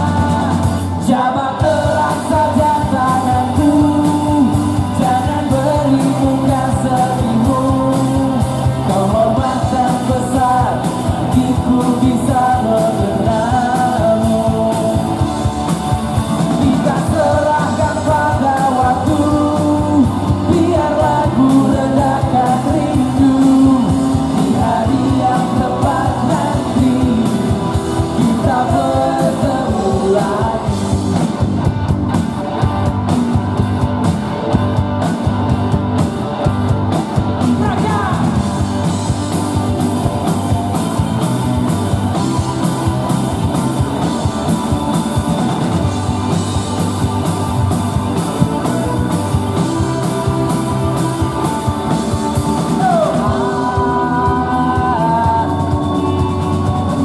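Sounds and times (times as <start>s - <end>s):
man singing lead: 0.0s - 31.4s, 37.3s - 39.1s, 48.1s - 57.0s
pop-rock band playing live: 0.0s - 57.0s.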